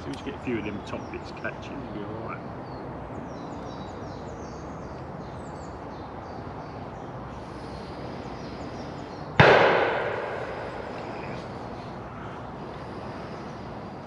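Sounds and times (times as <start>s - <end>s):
faint birdsong: 0.0s - 14.0s
canopy snapping in wind: 9.4s - 11.8s.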